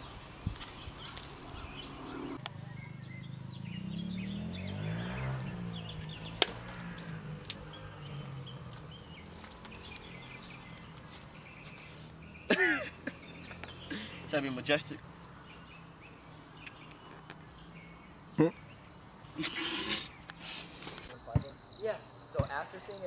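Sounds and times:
birds chirping: 0:00.0 - 0:23.0.

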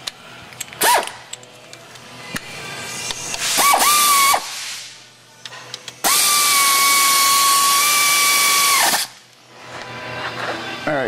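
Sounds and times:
air ratchet whining: 0:00.6 - 0:04.6, 0:05.4 - 0:09.2
hiss of exhaust air: 0:03.4 - 0:05.1.

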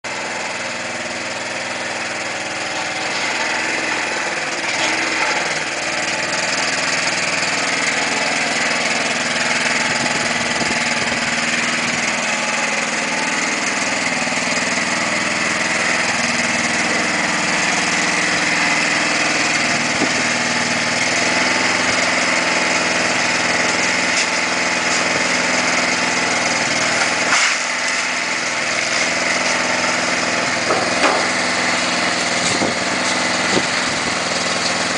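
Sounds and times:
small petrol engine running: 0:00.0 - 0:34.9
short knocks: 0:30.7 - 0:31.4.

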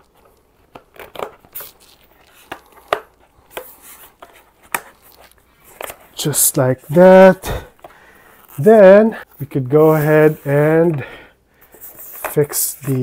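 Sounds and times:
plastic clicks and scrapes: 0:00.0 - 0:06.2.

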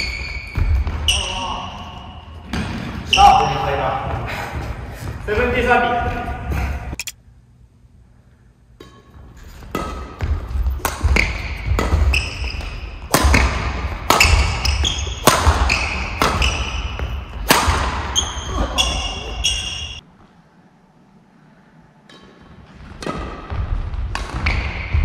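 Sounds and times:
court shoes squeaking: 0:00.0 - 0:07.0, 0:08.8 - 0:20.0, 0:22.1 - 0:25.0
racket hitting shuttlecock: 0:08.8 - 0:20.0, 0:22.1 - 0:25.0.

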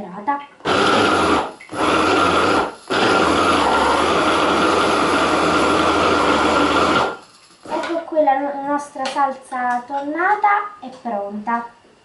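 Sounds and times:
hand blender motor whining: 0:00.6 - 0:08.0.

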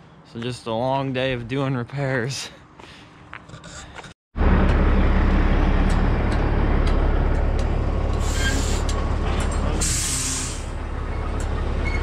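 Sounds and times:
diesel truck idling: 0:04.4 - 0:12.0
air brake hisses: 0:08.2 - 0:08.9, 0:09.8 - 0:10.7.

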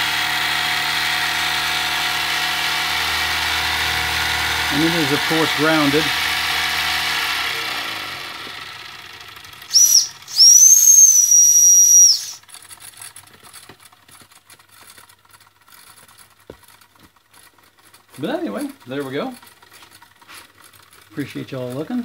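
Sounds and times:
steam whistle: 0:09.7 - 0:12.4.

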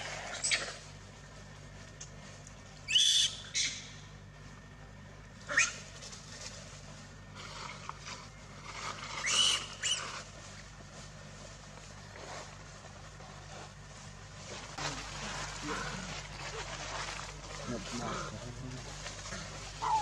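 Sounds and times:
monkeys screaming: 0:00.0 - 0:00.9, 0:02.9 - 0:04.0, 0:05.4 - 0:05.9, 0:09.2 - 0:10.2, 0:19.2 - 0:20.0.

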